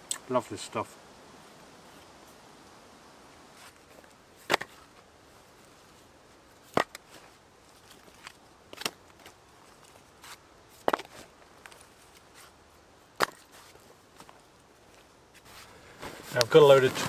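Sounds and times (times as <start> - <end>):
logs knocking onto woodpile: 4.4 - 4.8, 6.7 - 7.0, 10.8 - 11.2, 13.2 - 13.5.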